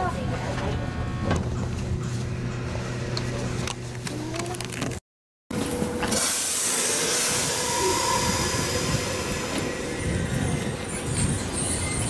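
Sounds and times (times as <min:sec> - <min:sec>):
train wheels rumbling on rail: 0:05.6 - 0:12.0
wheel squeal: 0:07.5 - 0:12.0.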